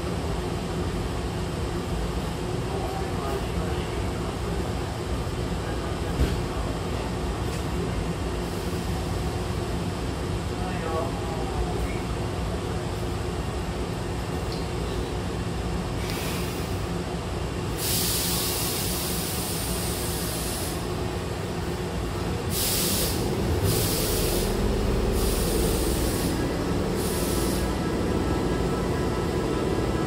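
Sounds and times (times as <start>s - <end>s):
train low rumble: 0.0s - 30.0s
air venting hisses: 17.7s - 21.0s, 22.4s - 27.9s.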